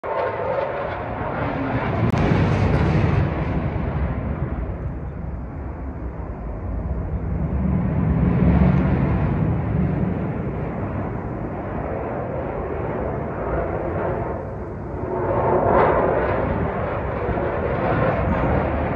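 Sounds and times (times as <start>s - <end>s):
fighter jet engine roar: 0.0s - 18.9s.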